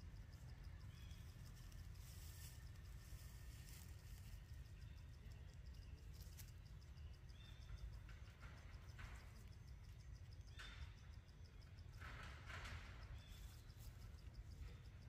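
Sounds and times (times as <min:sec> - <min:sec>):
insect ticking: 0:00.0 - 0:12.0
low steady rumble: 0:00.0 - 0:12.2.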